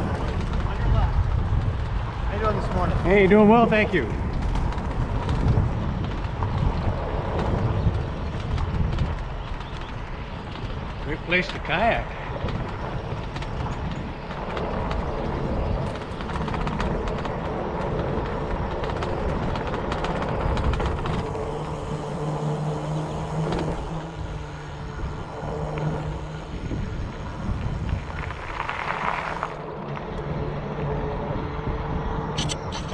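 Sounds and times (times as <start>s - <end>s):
bicycle tyres on wooden planks: 0.0s - 31.0s
wind on microphone: 0.0s - 32.9s.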